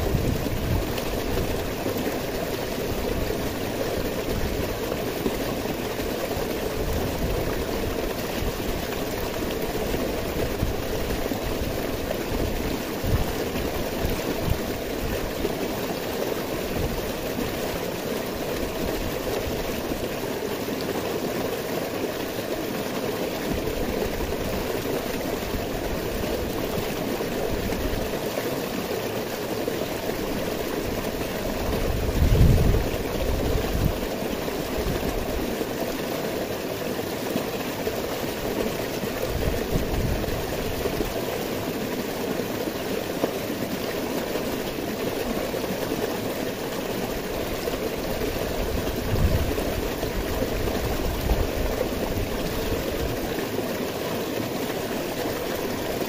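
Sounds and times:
stream rushing over boulders: 0.0s - 56.0s.

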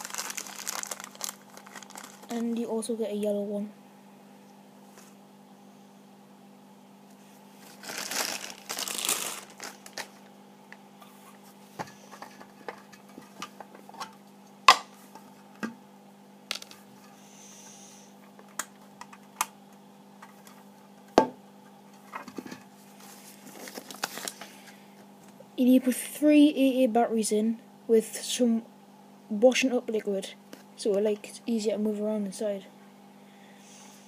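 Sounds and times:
plastic bag crinkling: 0.0s - 2.7s, 7.6s - 10.3s, 23.0s - 24.5s
faint steady hum: 0.0s - 34.0s.

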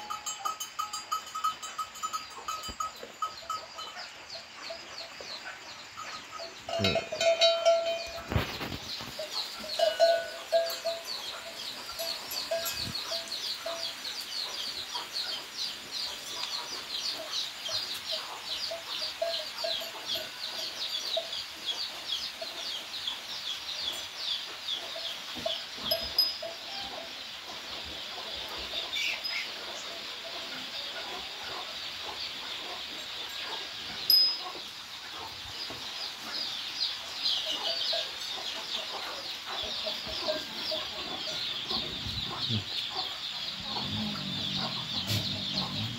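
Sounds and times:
chicks cheeping: 8.1s - 26.2s, 27.6s - 45.9s
hen clucking: 37.5s - 45.9s.

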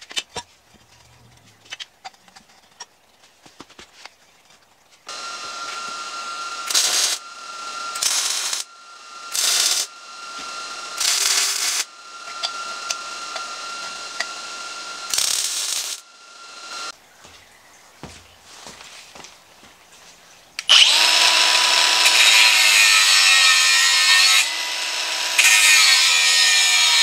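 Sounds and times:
welder arc crackling: 5.1s - 16.9s.

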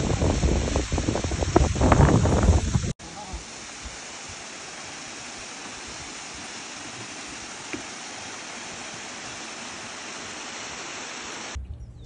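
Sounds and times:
waterfall rushing: 0.0s - 11.6s.

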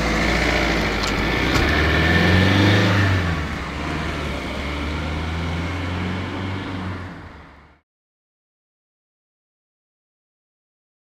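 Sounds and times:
van accelerating past: 0.0s - 7.5s.

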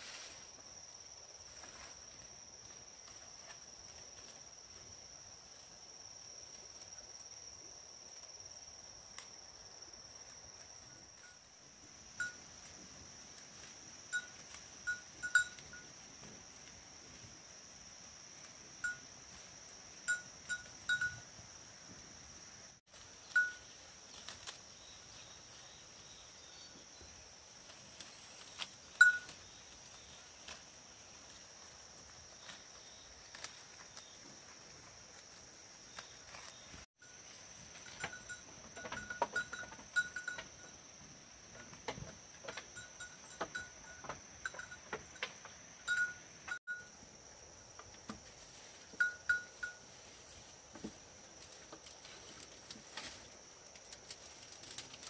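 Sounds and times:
goat bell clinking: 12.2s - 12.5s, 14.1s - 15.9s, 18.8s - 19.0s, 20.1s - 21.3s, 23.3s - 23.7s, 28.9s - 29.4s, 37.7s - 40.8s, 42.4s - 46.9s, 48.9s - 50.0s
leaves rustling and twigs snapping: 22.9s - 25.3s, 27.5s - 36.8s, 51.2s - 55.0s.

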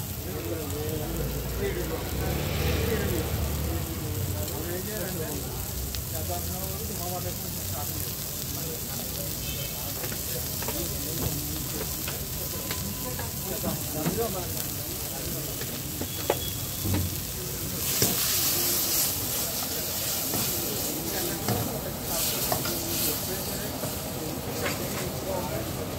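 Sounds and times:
oil sizzling in a wok: 0.0s - 25.9s.

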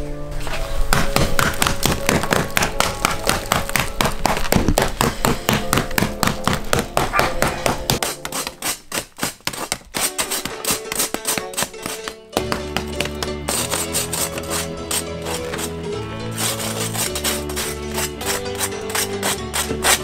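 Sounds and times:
background music with held notes: 0.0s - 8.6s, 10.1s - 20.0s
knife scraping bread crust: 7.1s - 20.0s.

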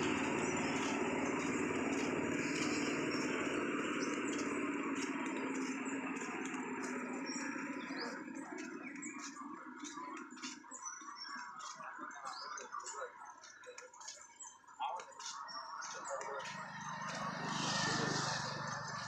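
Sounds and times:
vehicle passing by: 0.0s - 8.4s, 16.0s - 19.0s
birds chirping: 0.0s - 19.0s.

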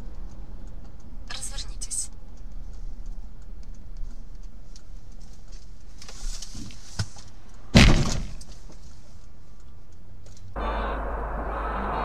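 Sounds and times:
low road rumble: 0.0s - 12.0s
vehicle collision impact: 7.7s - 8.7s.

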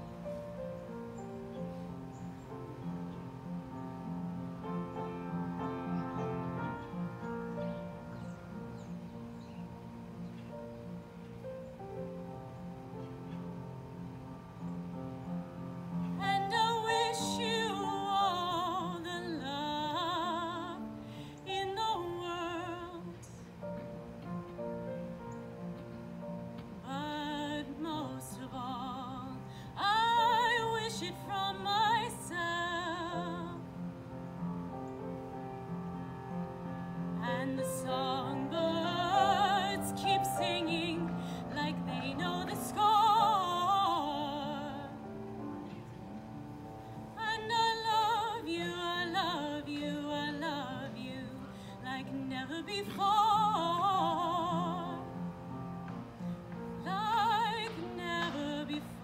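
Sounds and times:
woman singing with vibrato: 16.1s - 23.3s, 26.8s - 33.9s, 37.1s - 45.4s, 47.2s - 55.5s, 56.8s - 59.0s.

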